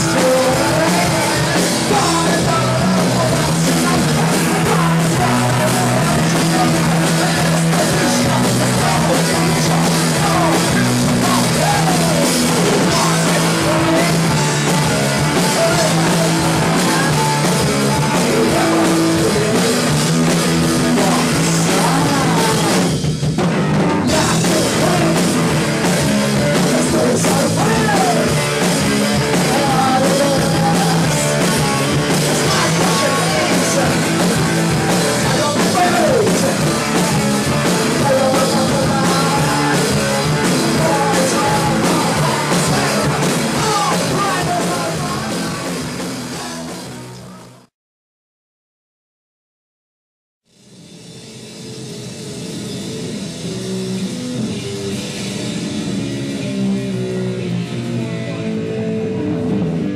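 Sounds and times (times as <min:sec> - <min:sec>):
person singing: 0:00.0 - 0:23.0, 0:24.0 - 0:47.7
drum kit: 0:00.0 - 0:47.7, 0:50.5 - 0:59.9
electric bass: 0:00.0 - 0:47.7, 0:51.4 - 0:59.9
electric guitar: 0:00.0 - 0:47.7, 0:50.7 - 0:59.9.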